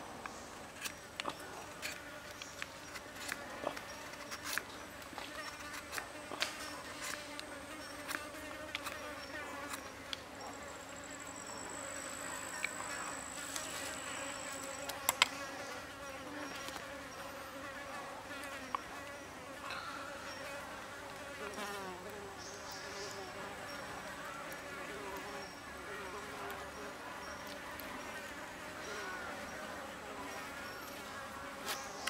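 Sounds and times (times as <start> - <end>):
flies buzzing: 0.0 - 32.0.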